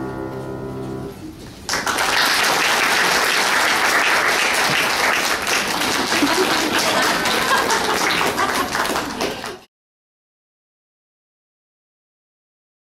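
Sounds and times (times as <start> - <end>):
audience applauding: 1.7 - 9.7.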